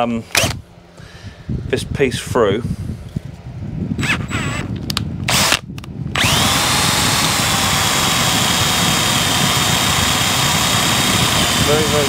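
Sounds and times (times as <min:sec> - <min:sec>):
cordless drill high whine: 0:04.0 - 0:04.7, 0:05.3 - 0:12.0.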